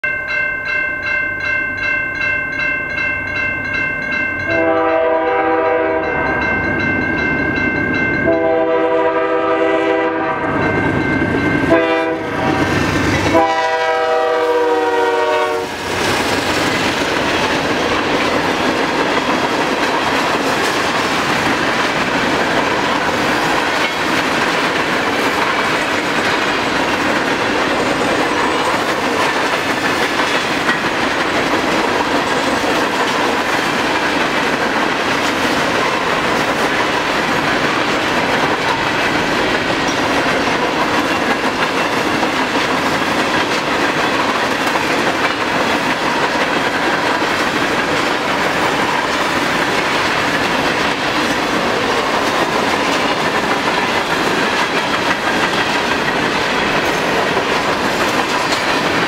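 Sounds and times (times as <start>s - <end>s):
crossing bell ringing: 0.0s - 59.0s
locomotive air horn blasts: 4.5s - 6.2s, 8.2s - 10.6s, 11.7s - 15.9s
train cars clattering over rail joints: 12.7s - 59.0s.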